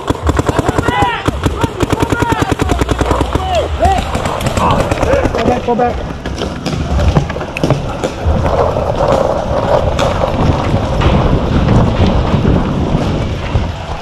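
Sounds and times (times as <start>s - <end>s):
wind rumble on microphone: 2.7s - 14.0s
footsteps: 2.8s - 14.0s.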